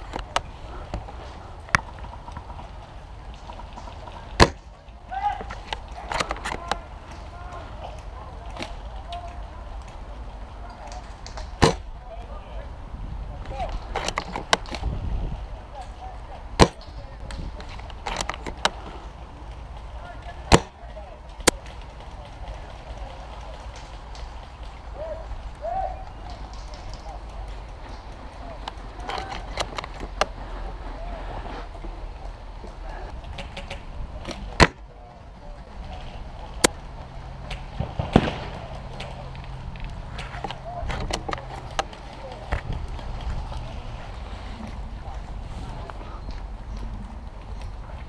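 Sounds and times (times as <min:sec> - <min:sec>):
faint voices: 0:00.0 - 0:48.0
wind rumble on microphone: 0:05.9 - 0:20.5, 0:21.8 - 0:48.0
airsoft gun cracks: 0:10.9 - 0:11.9, 0:37.5 - 0:39.2
airsoft guns firing: 0:11.6 - 0:11.9, 0:37.8 - 0:38.8.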